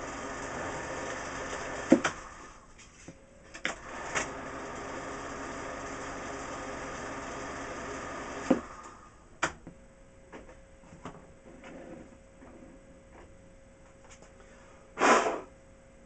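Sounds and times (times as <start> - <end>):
machine humming: 0.0 - 10.3.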